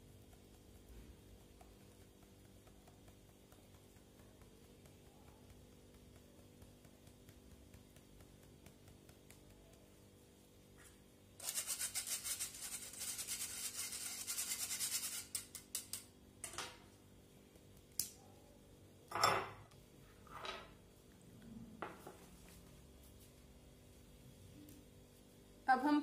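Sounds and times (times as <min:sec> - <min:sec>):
sugar rasping through mesh sieve: 0:11.4 - 0:16.2.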